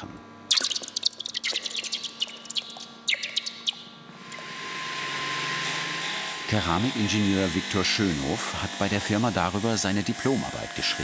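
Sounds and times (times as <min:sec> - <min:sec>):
molten metal crackling in water: 0:00.5 - 0:03.6.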